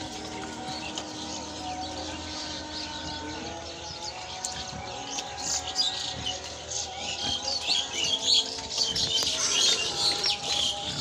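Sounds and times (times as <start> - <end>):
small birds chirping: 0.0 - 11.0
soft background music: 0.0 - 11.0.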